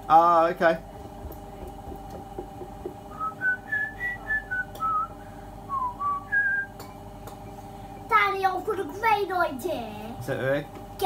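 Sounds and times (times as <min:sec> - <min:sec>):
low hum: 0:00.0 - 0:08.1
person whistling a tune: 0:03.1 - 0:05.1, 0:05.7 - 0:06.8.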